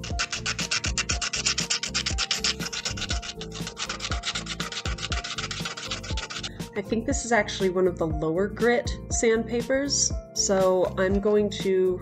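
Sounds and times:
emery board scraping card: 0.0s - 6.6s.

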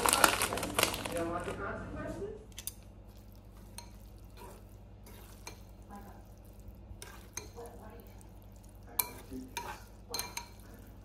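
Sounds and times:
food packet crinkling: 0.0s - 1.6s
low steady hum: 0.0s - 11.0s.

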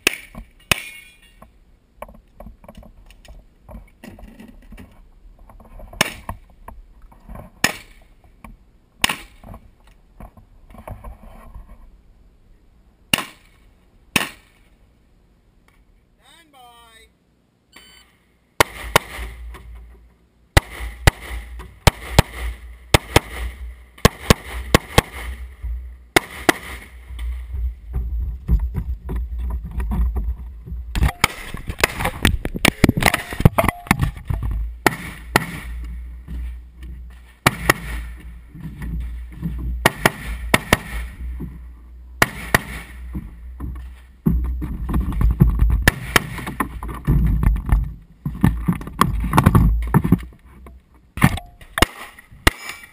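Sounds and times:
rifle shots: 18.6s - 19.5s, 20.6s - 27.4s, 31.0s - 34.1s, 34.8s - 35.9s, 37.4s - 38.2s, 39.8s - 41.2s, 42.2s - 43.0s, 45.8s - 46.6s, 51.2s - 52.9s
low wind rumble on microphone: 27.0s - 34.8s.

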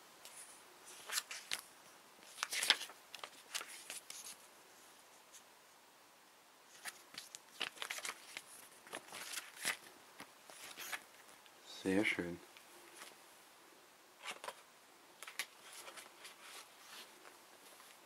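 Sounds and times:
paper pages rustling: 0.3s - 4.5s, 6.7s - 11.4s, 14.2s - 14.6s, 15.2s - 18.0s.

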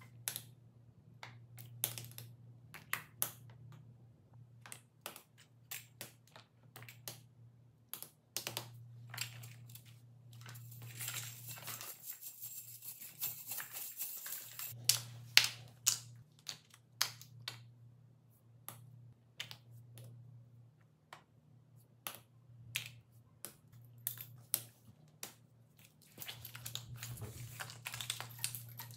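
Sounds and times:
rustling and sliding: 26.1s - 28.8s.

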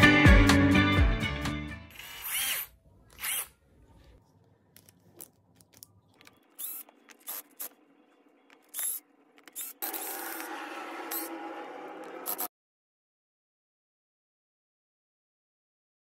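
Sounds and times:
cordless drill-driver bursts: 1.9s - 3.5s, 6.6s - 7.8s, 8.6s - 11.3s, 12.2s - 12.5s.

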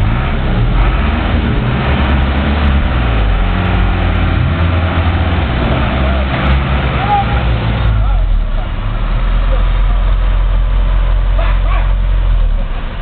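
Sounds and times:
engine revving hard: 0.0s - 9.3s.

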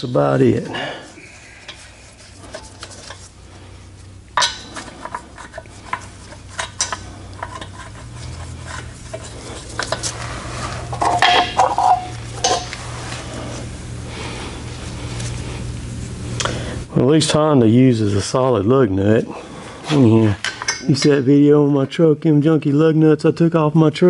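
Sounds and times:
low steady hum: 0.0s - 24.0s
lug nuts clinking: 1.6s - 13.6s.

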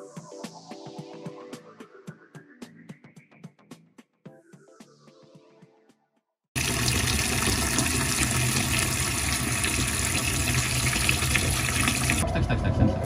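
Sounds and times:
tap water running into sink: 6.6s - 12.2s.

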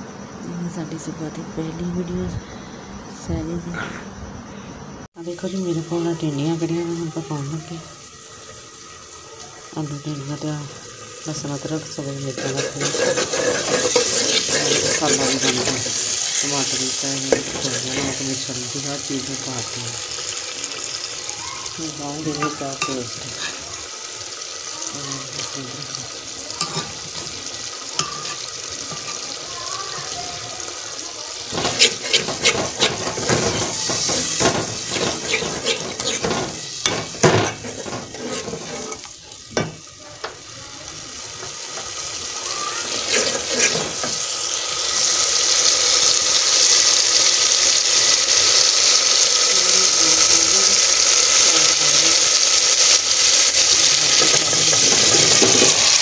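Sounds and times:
masala sizzling in a pot: 5.0s - 56.0s
ladle scraping a metal pot: 12.3s - 16.2s, 22.4s - 23.6s, 28.0s - 29.3s, 31.5s - 39.7s, 42.8s - 44.2s, 54.1s - 56.0s.

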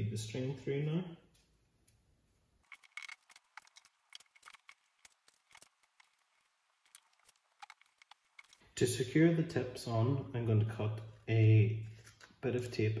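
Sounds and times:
string threaded through paper straws: 1.9s - 8.7s.

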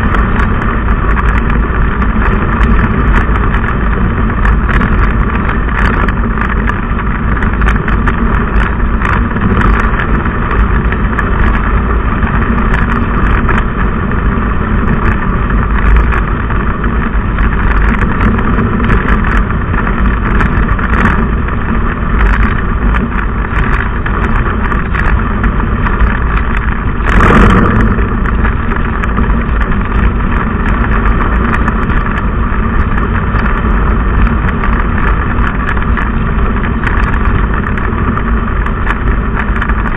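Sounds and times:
low engine rumble: 0.0s - 39.9s
tyre and wind rush: 0.0s - 39.9s.

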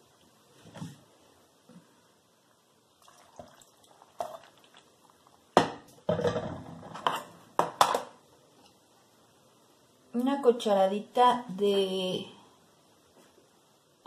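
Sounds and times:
broth pouring into blender jar: 3.0s - 5.2s.

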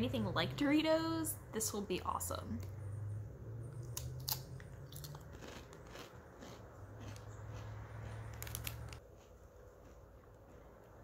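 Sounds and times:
crunchy chip being chewed: 3.8s - 10.6s.

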